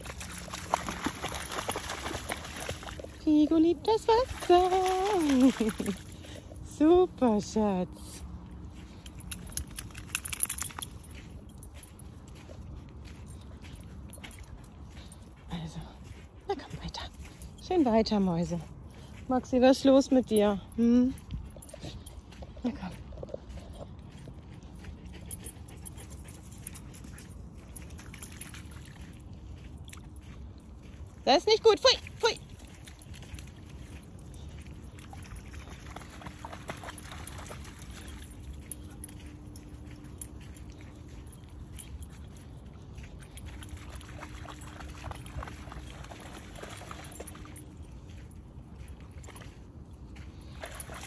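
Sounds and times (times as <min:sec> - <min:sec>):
dog splashing in water: 0:00.0 - 0:03.2, 0:04.1 - 0:06.3, 0:43.5 - 0:47.6.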